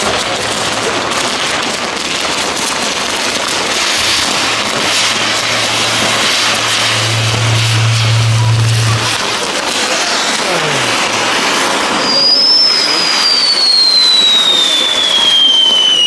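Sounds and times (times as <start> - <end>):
fireworks hissing and crackling: 0.0 - 16.0
steady low hum: 3.8 - 9.4.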